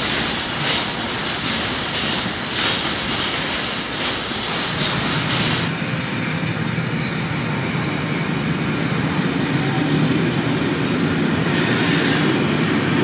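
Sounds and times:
freight train wheels rumbling: 0.0s - 13.0s
train hiss: 11.2s - 12.6s.

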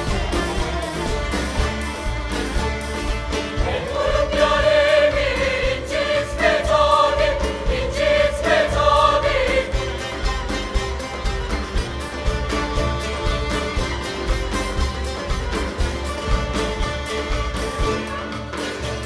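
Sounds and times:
folk ensemble playing: 0.0s - 19.0s
steady drum beat: 0.0s - 19.0s
mixed choir singing: 3.3s - 10.8s.

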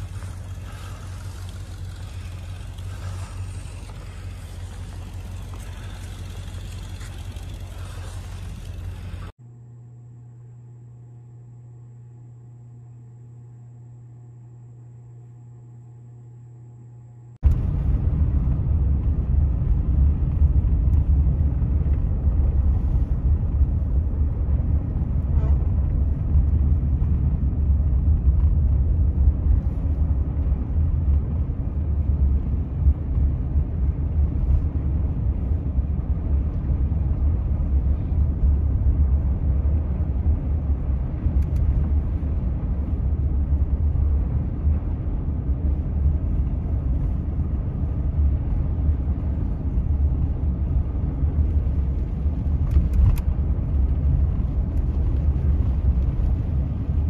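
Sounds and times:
car road noise on snow: 0.0s - 9.4s, 17.4s - 57.0s.

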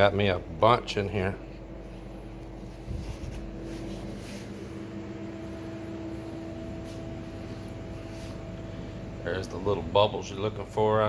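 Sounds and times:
machine hum: 0.0s - 11.0s
faint rustles: 1.8s - 8.6s.

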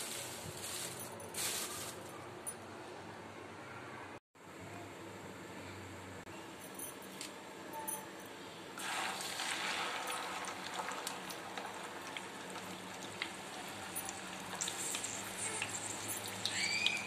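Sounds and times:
fish sizzling in hot oil: 8.8s - 17.0s.

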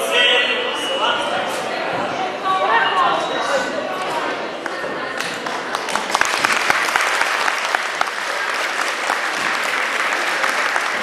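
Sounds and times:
audience applauding: 4.6s - 11.0s.

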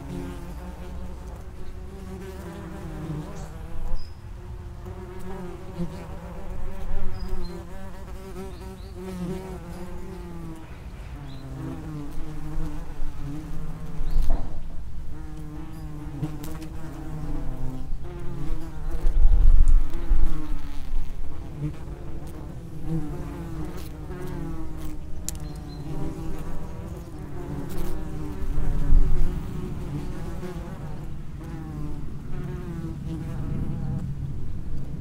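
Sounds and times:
wasps buzzing: 21.4s - 33.4s.

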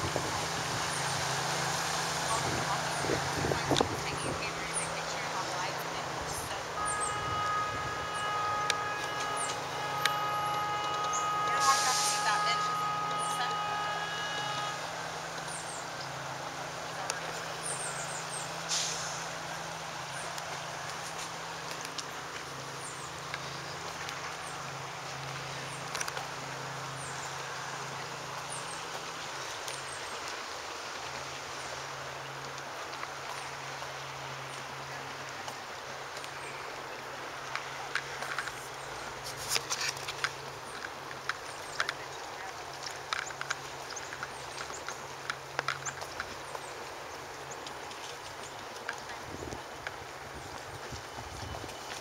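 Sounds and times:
boat engine droning: 0.0s - 52.0s
brief hiss: 11.1s - 12.4s, 18.6s - 19.4s
steady hiss: 18.1s - 32.6s.

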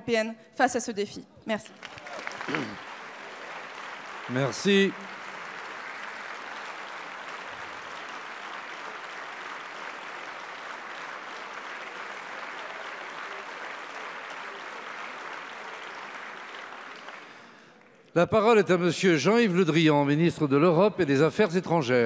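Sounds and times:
crowd applause: 1.7s - 18.0s.

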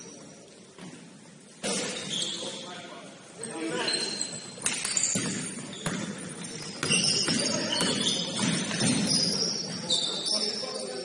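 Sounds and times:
sneaker squeaks on court floor: 0.0s - 11.0s
players' voices: 1.6s - 11.0s
basketball knocks: 4.8s - 9.2s.

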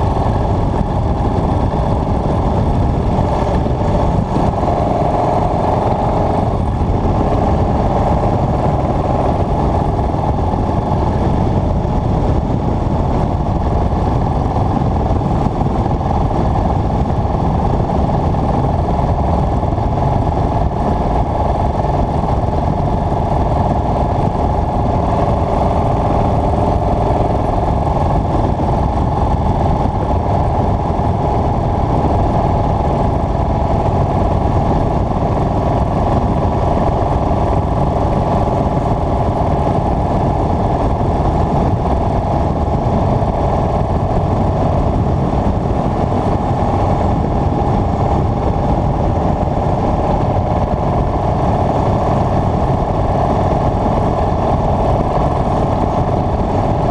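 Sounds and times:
motorcycle engine cruising: 0.0s - 56.9s.

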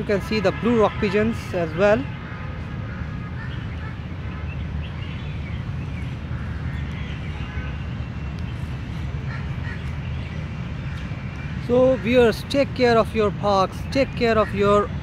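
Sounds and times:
faint bird calls: 2.8s - 12.4s.

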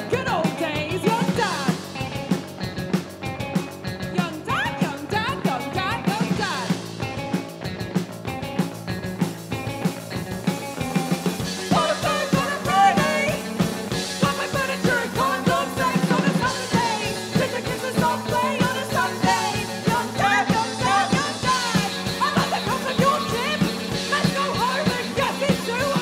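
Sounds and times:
drum beat: 0.0s - 26.0s
guitars: 0.0s - 26.0s
person singing: 11.6s - 26.0s.

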